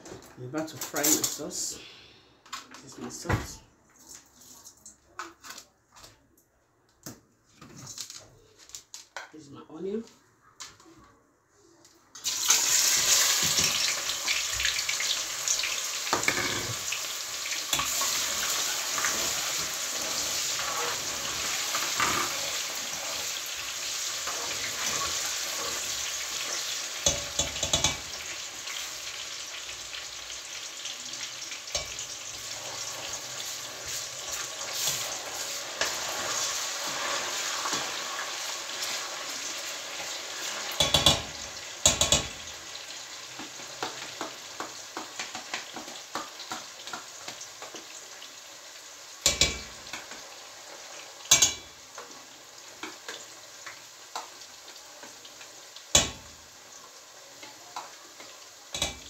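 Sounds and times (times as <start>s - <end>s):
onions sizzling in hot oil: 12.2s - 59.0s.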